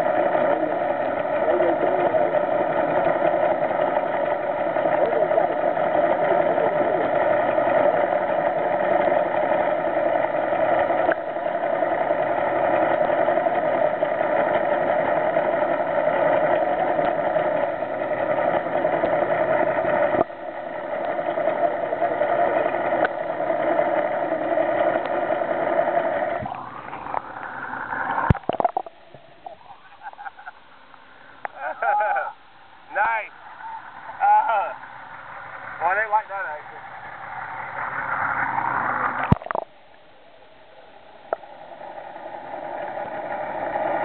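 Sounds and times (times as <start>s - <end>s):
boat engine drone underwater: 0.0s - 44.0s.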